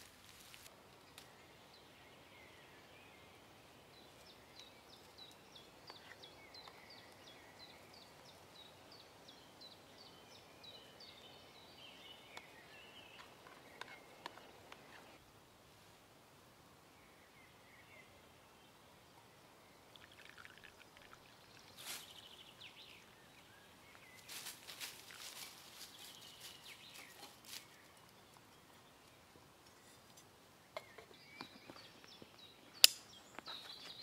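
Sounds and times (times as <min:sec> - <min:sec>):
rustling: 0:00.0 - 0:00.7, 0:24.0 - 0:28.2.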